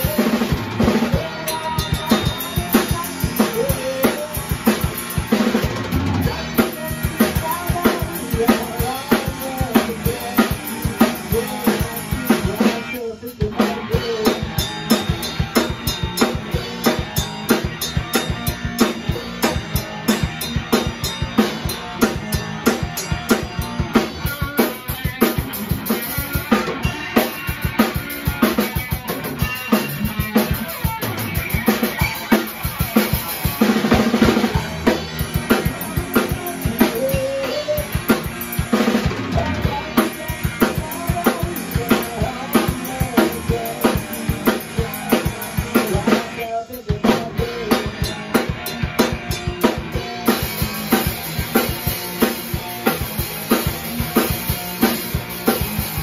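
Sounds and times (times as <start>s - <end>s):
rock drum beat: 0.0s - 56.0s
band instruments playing: 13.8s - 46.5s.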